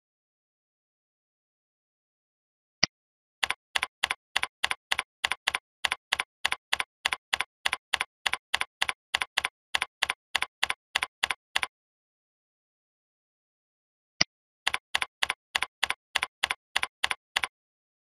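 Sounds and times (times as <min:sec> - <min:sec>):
keyboard key clicks: 0:03.4 - 0:11.7, 0:14.7 - 0:17.5.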